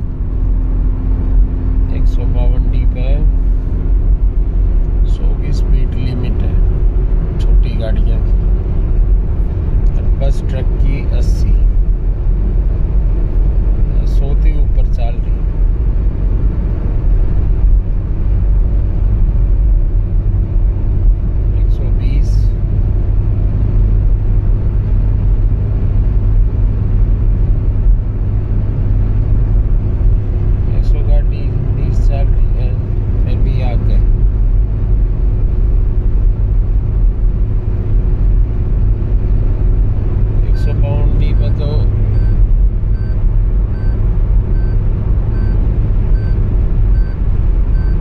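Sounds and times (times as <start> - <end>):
car road noise rumble: 0.0 - 48.0
short electronic beep: 40.5 - 48.0.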